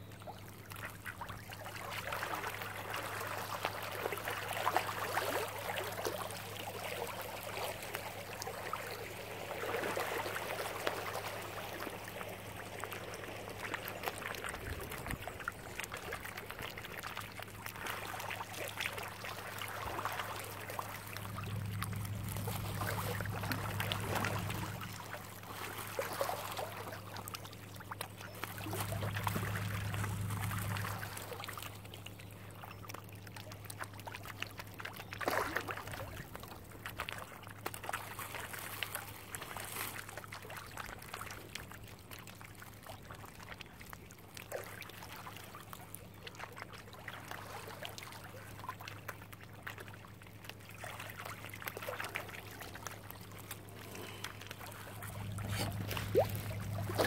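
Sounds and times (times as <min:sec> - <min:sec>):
water splashing and lapping: 0:00.0 - 0:57.0
steady low hum: 0:18.9 - 0:32.6, 0:51.0 - 0:57.0.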